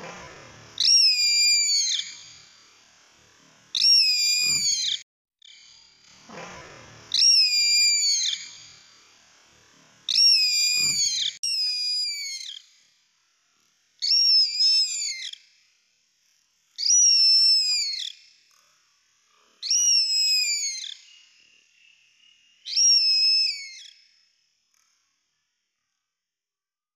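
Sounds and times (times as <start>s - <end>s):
bird high whistling calls: 0.0s - 2.6s, 3.7s - 5.0s, 7.1s - 9.0s, 10.1s - 12.8s, 14.0s - 15.4s, 16.8s - 18.2s, 19.6s - 21.4s, 22.6s - 24.1s.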